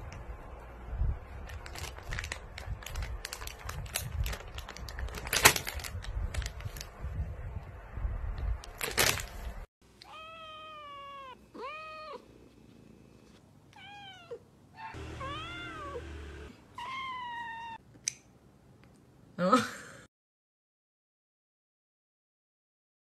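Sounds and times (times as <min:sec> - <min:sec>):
plastic bag rustling: 0:01.4 - 0:07.0, 0:08.7 - 0:09.6.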